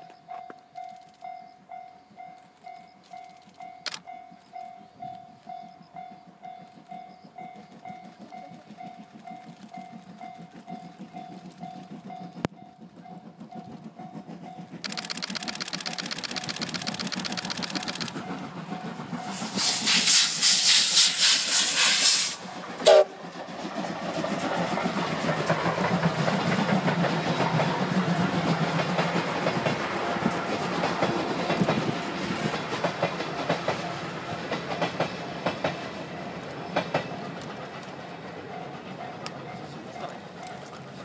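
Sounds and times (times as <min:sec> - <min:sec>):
train wheels clattering over rails: 0:02.3 - 0:41.0
steam hissing: 0:07.6 - 0:41.0
locomotive whistle blast: 0:19.3 - 0:23.2.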